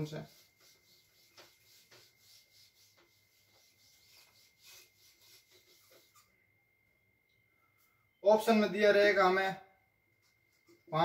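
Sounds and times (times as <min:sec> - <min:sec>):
eraser rubbing on whiteboard: 0:00.0 - 0:06.3.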